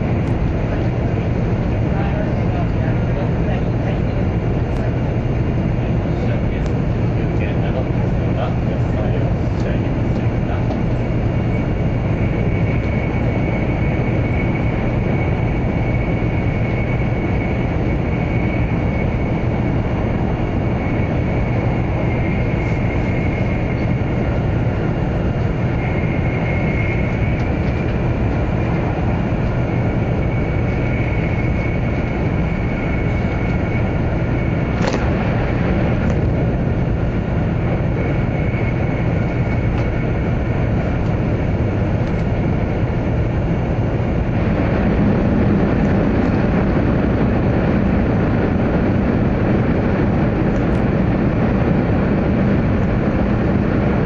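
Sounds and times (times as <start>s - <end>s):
faint high whine: 0.0s - 54.0s
train wheels rumbling on rails: 0.0s - 54.0s
sharp click: 34.8s - 35.1s.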